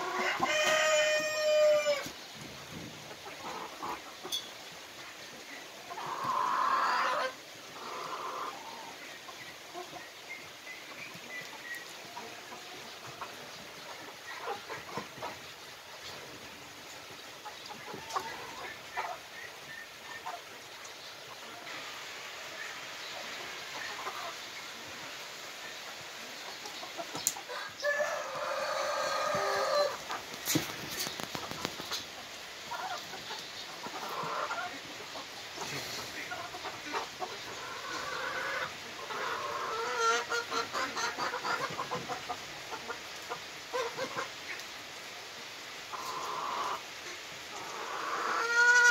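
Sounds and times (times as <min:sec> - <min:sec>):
long drawn-out chicken call: 0:00.0 - 0:02.2, 0:05.9 - 0:09.0, 0:26.9 - 0:30.2, 0:36.9 - 0:41.8, 0:45.9 - 0:48.9
chickens calling and clucking: 0:00.0 - 0:48.9.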